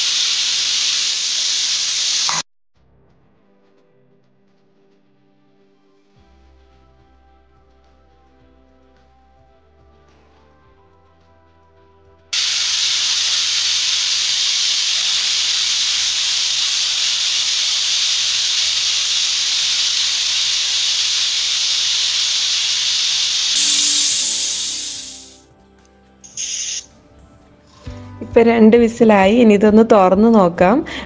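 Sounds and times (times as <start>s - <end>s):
pressure cooker whistling steam: 0.0s - 2.4s, 12.4s - 25.4s, 26.2s - 26.9s.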